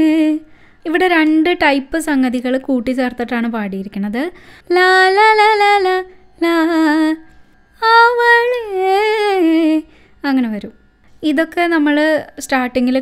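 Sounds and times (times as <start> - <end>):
woman singing unaccompanied: 0.0 - 13.0.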